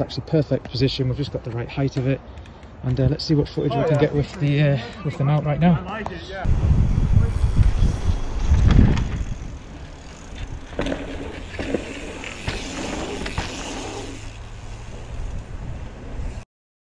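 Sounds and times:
bike tyres scuffing over dirt: 7.5s - 15.0s
bikes landing knocks: 10.2s - 14.0s.

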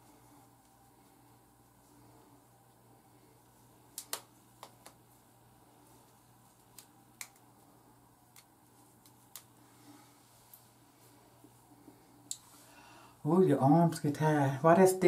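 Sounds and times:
faint room hum: 0.0s - 15.0s
rubber bands snapping on hair: 3.9s - 5.0s, 6.5s - 7.5s, 8.3s - 9.5s.

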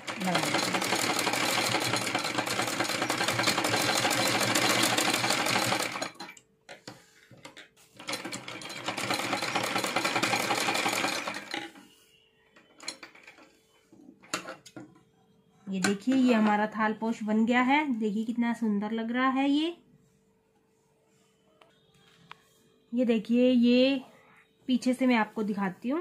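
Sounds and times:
sewing machine running: 0.0s - 6.4s, 8.0s - 11.8s.

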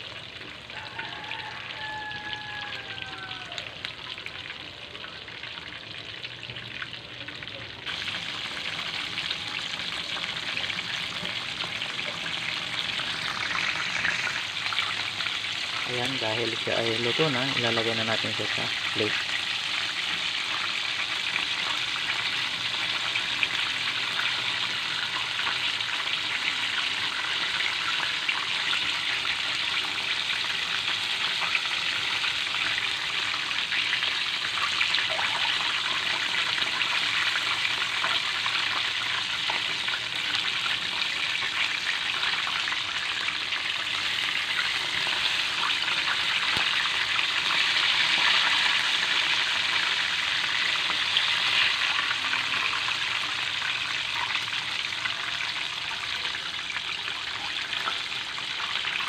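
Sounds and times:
chicken deep-frying in hot oil: 0.0s - 59.0s.

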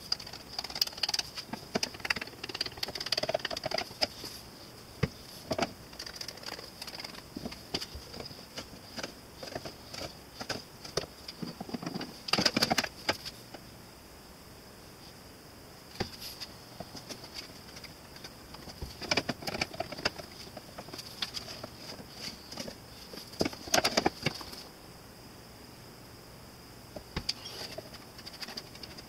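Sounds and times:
wood strips clacking and knocking: 0.0s - 4.2s
steady high whine: 0.0s - 29.0s.

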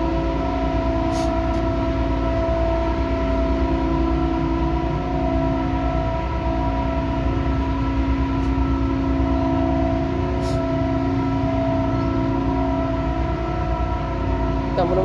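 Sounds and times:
ship machinery droning: 0.0s - 15.0s.

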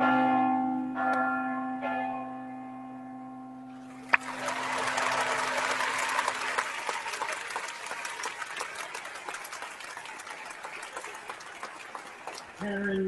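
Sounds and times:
crowd applauding: 3.9s - 13.0s.

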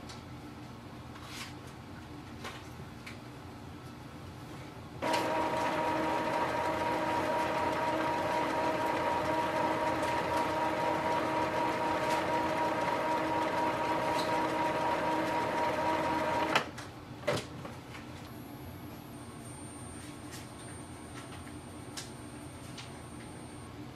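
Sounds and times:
printer motor whirring: 5.0s - 16.7s.

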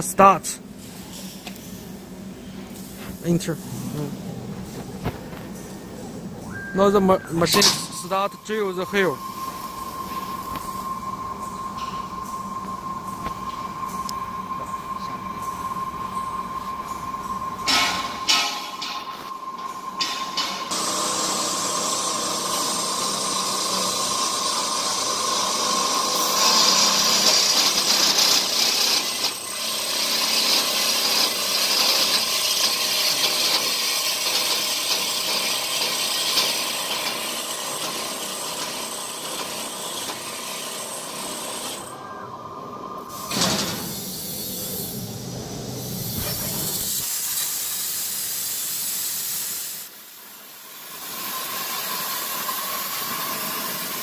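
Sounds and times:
drill spindle whining: 20.7s - 42.9s
plasma torch arc hissing: 24.0s - 37.1s, 43.1s - 54.0s.

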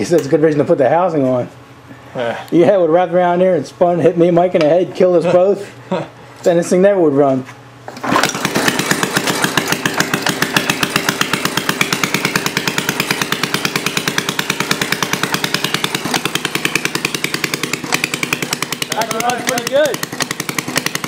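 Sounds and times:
lawnmower engine running: 7.9s - 21.0s
rope pull starting engine: 7.9s - 21.0s.

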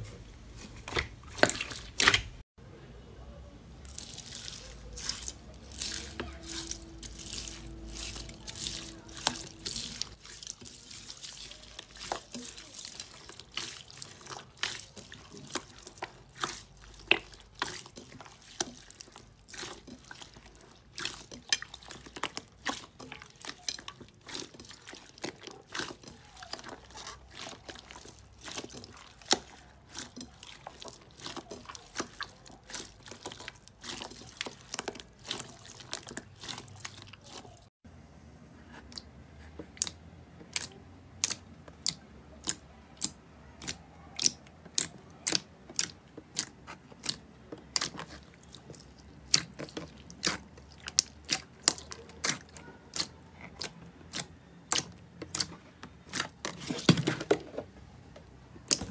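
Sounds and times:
slime squishing and crackling: 0.7s - 2.4s, 3.8s - 37.7s, 39.7s - 57.4s, 58.6s - 58.9s.

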